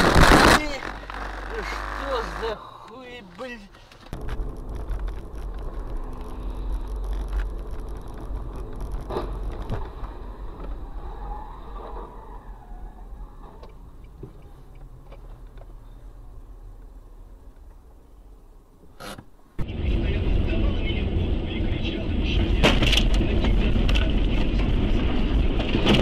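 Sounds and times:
engine and tyres on wet road: 0.0 - 16.1.

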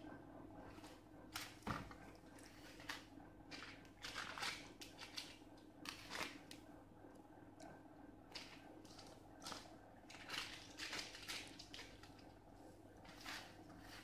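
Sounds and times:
faint steady hum: 0.0 - 14.0
spatula scraping batter: 13.0 - 14.0.

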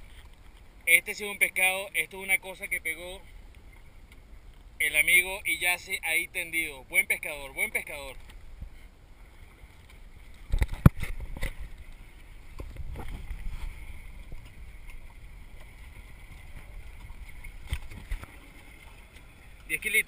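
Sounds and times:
water washing against boat hull: 6.4 - 20.0
wind on microphone: 10.4 - 18.8.

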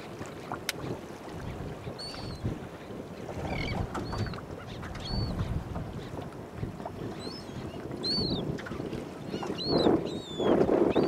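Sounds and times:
wind buffeting microphone: 0.0 - 11.0
birds calling: 1.9 - 2.4, 3.4 - 6.2, 7.0 - 11.0.

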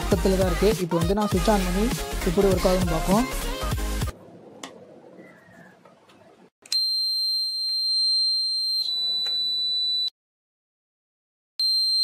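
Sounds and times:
high-pitched alarm buzzer beep: 11.6 - 12.0.

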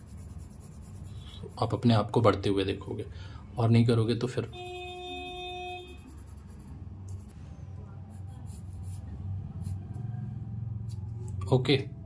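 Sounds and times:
pencil sketching on paper: 0.0 - 1.9, 4.6 - 7.4, 8.1 - 10.2
steady tone: 4.5 - 11.4.

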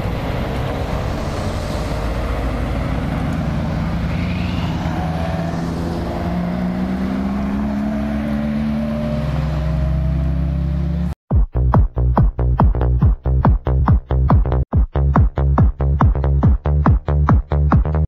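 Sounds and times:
cars rolling past at low revs: 0.0 - 11.2.

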